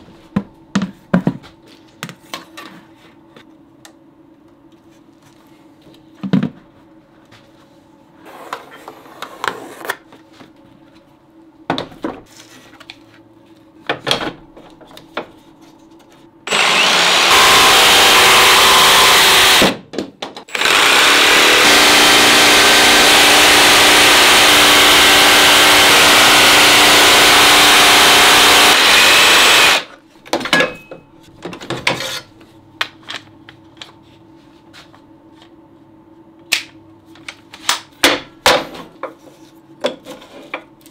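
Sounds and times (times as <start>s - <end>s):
jigsaw cutting wood: 16.5s - 19.8s, 20.5s - 29.9s.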